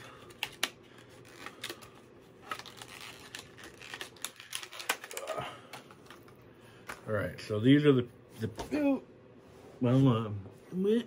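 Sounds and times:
plastic packaging crinkling: 0:00.3 - 0:06.4.

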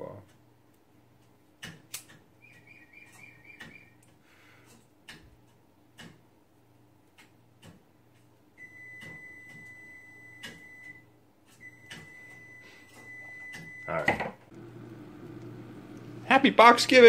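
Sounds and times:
timer alarm beeps: 0:02.4 - 0:04.0, 0:08.6 - 0:14.0.

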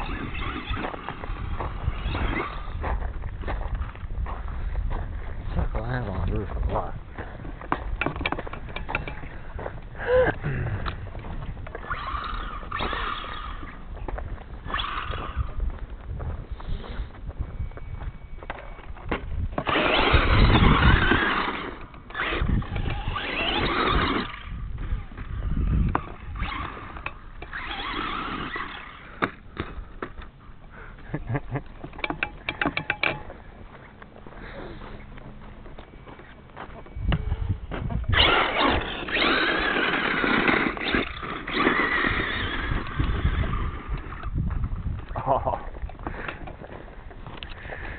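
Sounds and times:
toy truck motor revving: 0:00.0 - 0:02.8, 0:11.7 - 0:13.8, 0:14.6 - 0:15.5, 0:19.6 - 0:29.2, 0:38.1 - 0:44.3.

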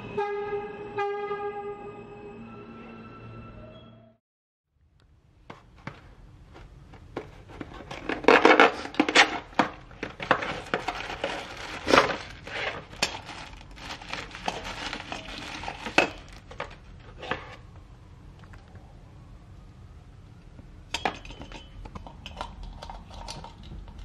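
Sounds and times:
packaging rustling and crinkling: 0:06.6 - 0:17.6.

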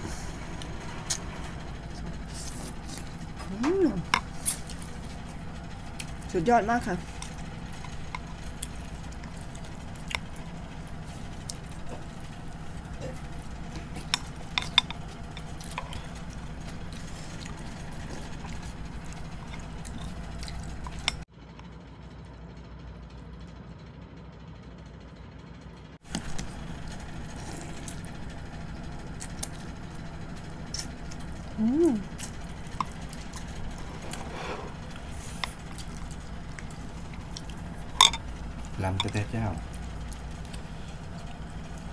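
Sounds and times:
steady low hum: 0:00.0 - 0:41.9
person humming mmm: 0:03.4 - 0:04.1, 0:31.5 - 0:32.4
slurping noodles: 0:32.8 - 0:37.6
chopsticks clicking on ceramic bowls: 0:38.9 - 0:39.3.

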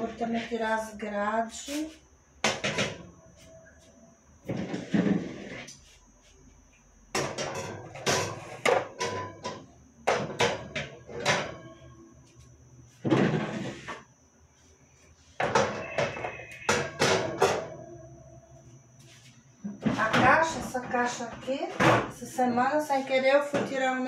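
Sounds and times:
refrigerator shelves clattering: 0:04.4 - 0:05.7, 0:07.1 - 0:11.9, 0:13.0 - 0:14.0, 0:15.4 - 0:17.9, 0:19.8 - 0:24.0.

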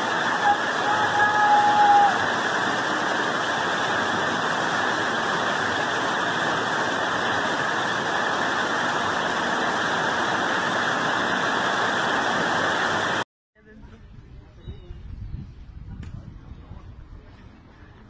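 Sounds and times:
floodwater rushing: 0:00.0 - 0:13.2.

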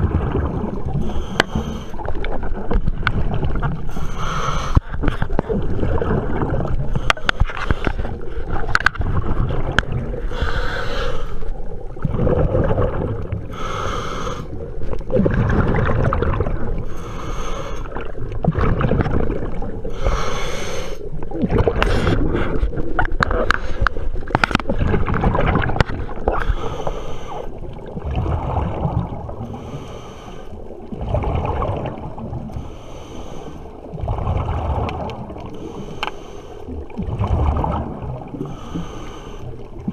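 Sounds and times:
gurgle of bubbles: 0:00.0 - 0:04.1, 0:04.8 - 0:10.5, 0:11.5 - 0:13.9, 0:14.5 - 0:17.0, 0:17.8 - 0:20.2, 0:21.1 - 0:29.7, 0:30.6 - 0:32.7, 0:33.7 - 0:35.8, 0:36.7 - 0:39.9
low rumble of moving water: 0:00.0 - 0:39.9
diver breathing through regulator: 0:01.0 - 0:02.2, 0:03.9 - 0:05.3, 0:06.9 - 0:08.6, 0:10.2 - 0:11.5, 0:13.5 - 0:14.6, 0:16.8 - 0:18.1, 0:19.9 - 0:21.1, 0:26.3 - 0:27.6, 0:29.4 - 0:30.8, 0:32.5 - 0:34.0, 0:35.4 - 0:36.8, 0:38.3 - 0:39.7.

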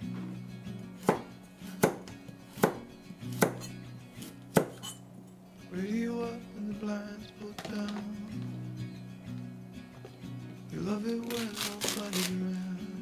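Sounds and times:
knife chopping on cutting board: 0:01.0 - 0:04.9.

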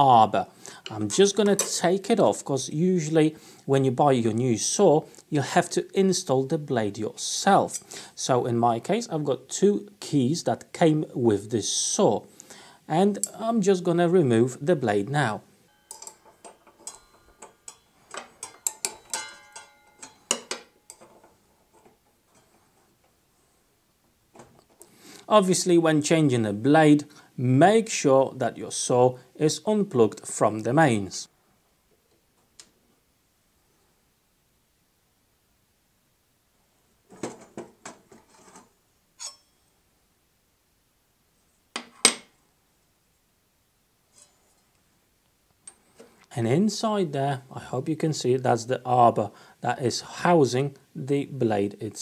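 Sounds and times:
wrenches clinking on metal: 0:15.8 - 0:21.9.

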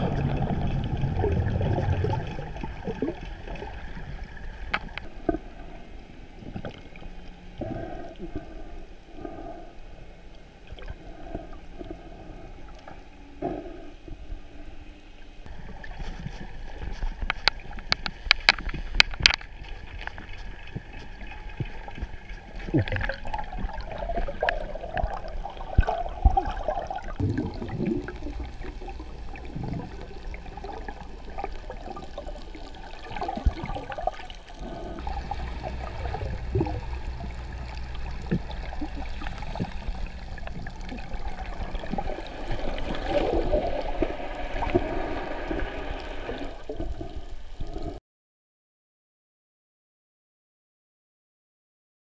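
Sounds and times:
muffled underwater gurgling: 0:00.0 - 0:09.7, 0:20.4 - 0:48.0.

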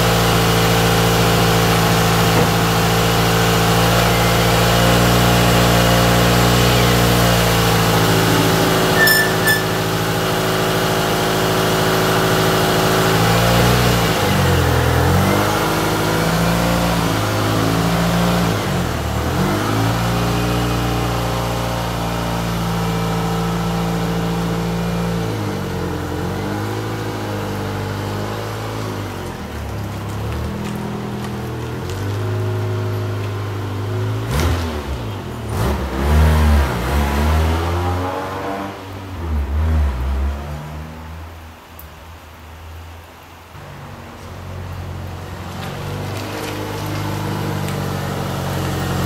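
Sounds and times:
car engine revving: 0:00.0 - 0:28.6.

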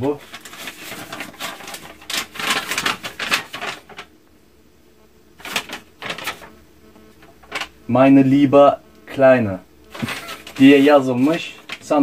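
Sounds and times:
paper crackling and rustling: 0:00.0 - 0:04.2, 0:05.4 - 0:07.8, 0:09.9 - 0:12.0.

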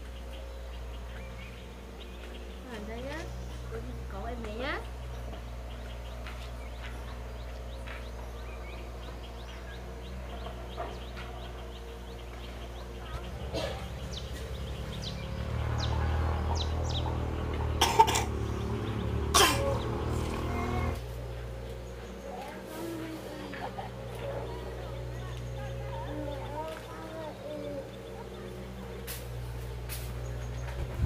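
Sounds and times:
person coughing: 0:13.5 - 0:13.9, 0:17.8 - 0:18.3, 0:19.4 - 0:19.8
low rumble: 0:23.5 - 0:31.0.

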